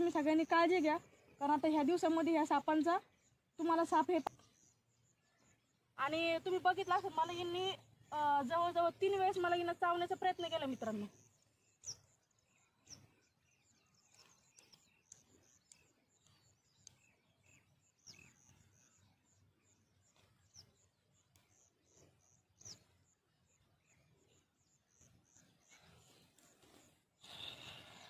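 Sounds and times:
falling whistled bird calls: 0:27.2 - 0:28.0.

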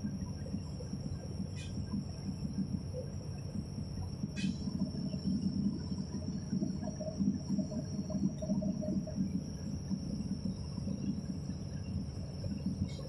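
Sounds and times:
high-pitched whine: 0:00.0 - 0:13.0.

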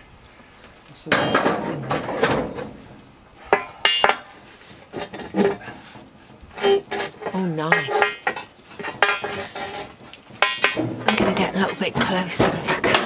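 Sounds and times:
crowbar scraping against stone: 0:04.9 - 0:13.0.

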